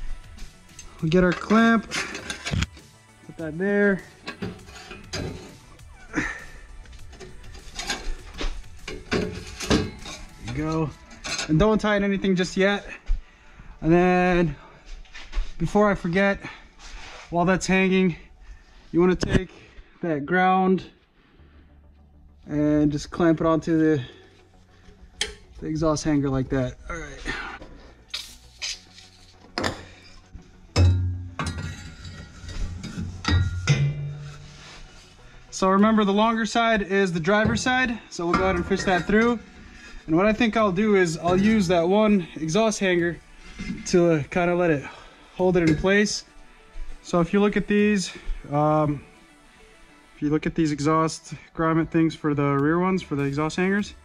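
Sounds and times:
metal pipe parts clinking: 0.7 - 2.9, 4.0 - 5.7, 7.0 - 11.6, 25.2 - 25.5, 27.6 - 34.8, 35.9 - 42.3
metal knocks and scrapes: 1.0 - 2.9, 4.0 - 5.8, 7.0 - 11.8, 30.7 - 35.0, 35.9 - 41.8.

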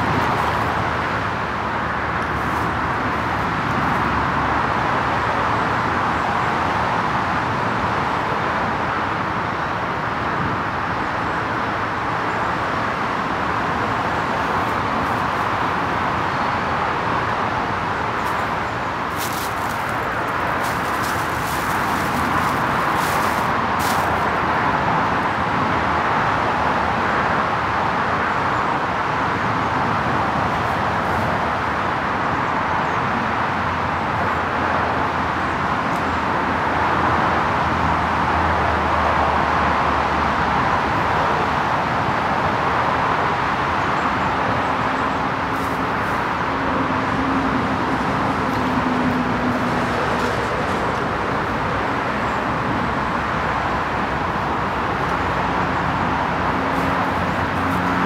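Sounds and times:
steady rushing noise: 0.0 - 8.0, 8.7 - 25.8, 45.0 - 58.0.

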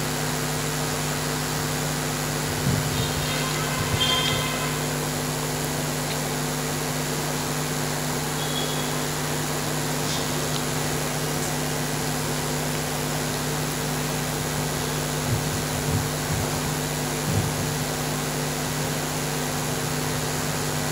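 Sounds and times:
background hum and hiss: 0.0 - 20.9.

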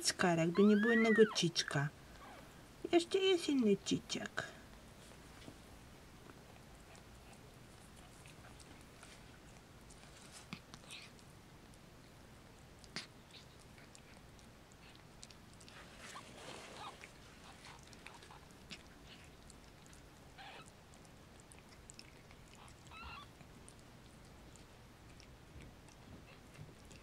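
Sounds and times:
cat licking kittens: 0.0 - 27.0
kitten squeak: 0.5 - 2.4, 20.4 - 20.7, 22.9 - 23.3.

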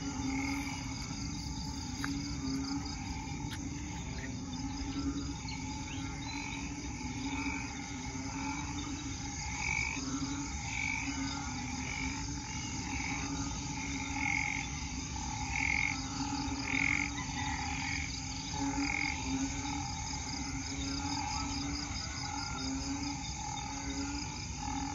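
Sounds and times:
short higher frog calls: 0.0 - 8.7
chorus of frogs calling: 0.0 - 24.9.

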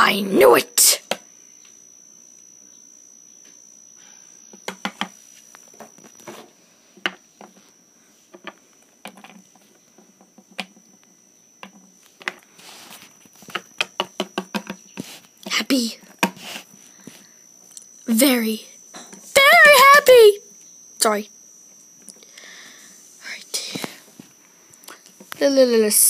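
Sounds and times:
faint high-pitched whine: 0.0 - 26.0
plastic toys tapping on wooden table: 4.6 - 5.1, 13.5 - 14.8.

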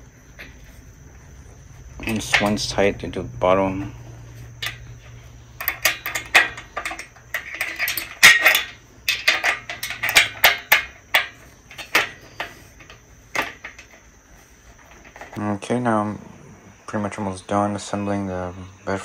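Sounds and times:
wrench clinking against metal: 5.6 - 14.0.

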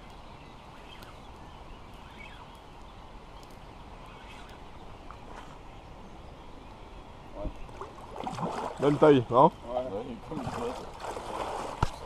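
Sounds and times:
bird chirps: 0.0 - 7.9
faint outdoor hiss: 0.0 - 12.0.

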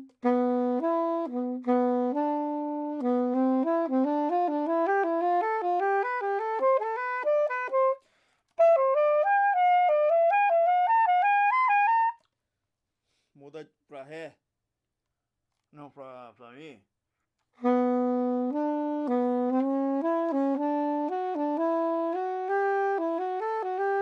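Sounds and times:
soprano saxophone playing: 0.0 - 12.3, 17.6 - 24.0.

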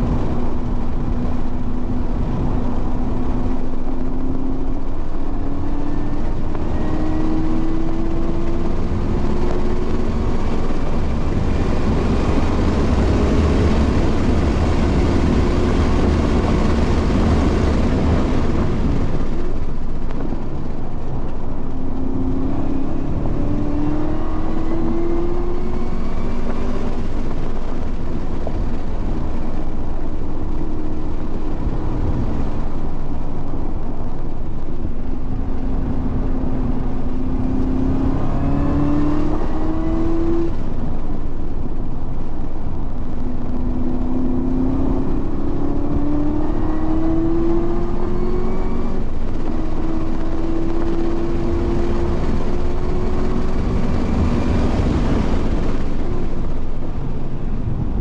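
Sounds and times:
car engine accelerating: 0.0 - 58.0
wind and tyre noise: 0.0 - 58.0.

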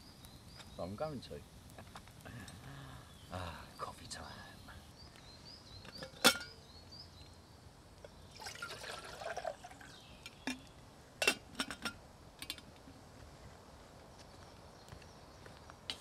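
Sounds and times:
metal kettle lid clinking: 5.9 - 6.6, 11.2 - 12.6
water pouring into kettle: 8.3 - 10.0.

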